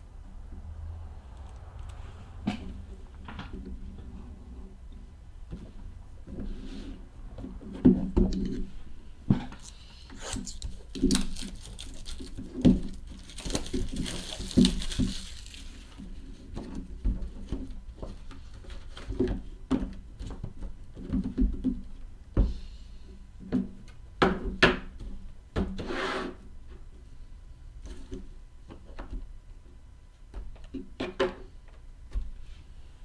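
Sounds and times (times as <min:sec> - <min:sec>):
plastic wrap crinkling: 0:10.3 - 0:16.0
boxes being handled: 0:10.6 - 0:19.5.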